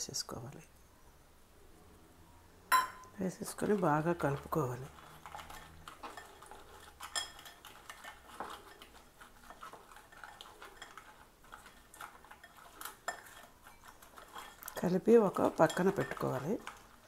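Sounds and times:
wet squishing: 3.4 - 17.0.

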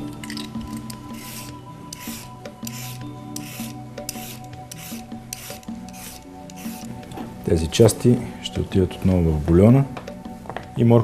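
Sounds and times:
soft background music: 0.0 - 11.0
vegetable peeler scraping carrot: 1.1 - 6.9.

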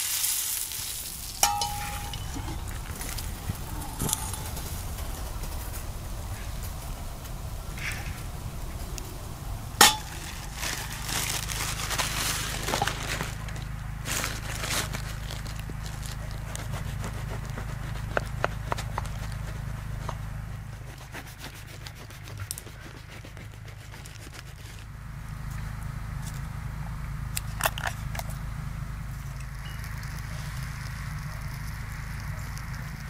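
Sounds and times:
sharp metal clink: 1.4 - 2.6, 9.8 - 10.3
knife sawing through crusty bread: 16.1 - 24.8.

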